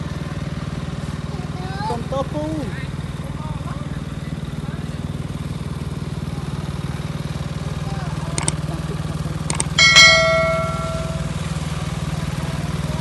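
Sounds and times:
engine humming: 0:00.0 - 0:13.0
small clicks: 0:08.4 - 0:08.6, 0:09.5 - 0:09.8
sharp metallic clink ringing: 0:09.7 - 0:11.5.

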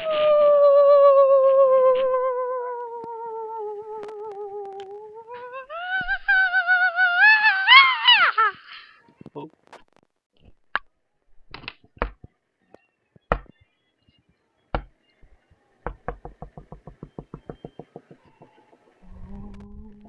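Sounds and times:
sharp knocking: 0:15.9 - 0:19.0.

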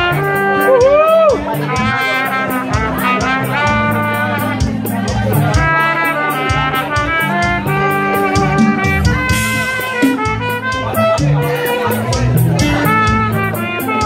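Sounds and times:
acoustic guitar: 0:00.0 - 0:14.0
trumpet melody: 0:00.0 - 0:14.0.

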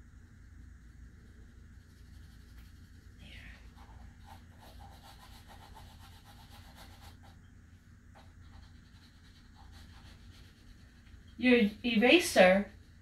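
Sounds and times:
pencil rubbing on paper: 0:01.7 - 0:07.4, 0:08.2 - 0:12.8.

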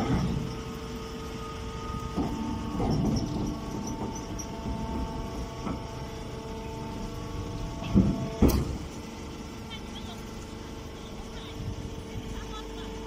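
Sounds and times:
baler motor humming: 0:00.0 - 0:13.0
clunks: 0:01.8 - 0:09.0.

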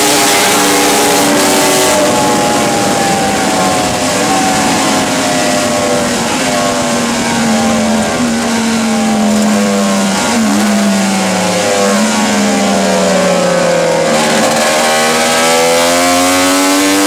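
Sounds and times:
racing motorcycle engine: 0:00.0 - 0:17.0
wind rush over microphone: 0:00.5 - 0:10.3.

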